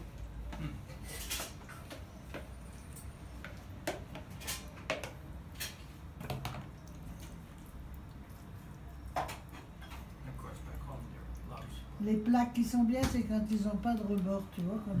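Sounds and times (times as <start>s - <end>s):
low steady hum: 5.0s - 15.0s.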